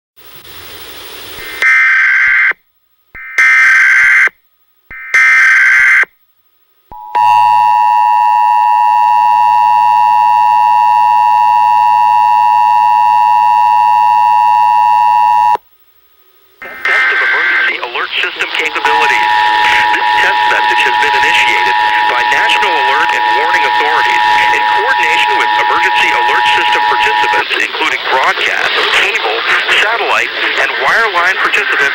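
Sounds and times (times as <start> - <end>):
two-tone attention signal: 6.9 - 15.6, 18.6 - 27.6
buzzy digital data bursts: 16.6 - 31.9.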